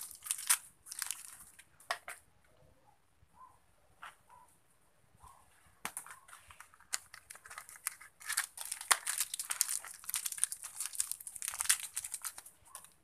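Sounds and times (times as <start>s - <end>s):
plastic wrapping crinkling: 0.0s - 1.6s, 5.9s - 13.0s.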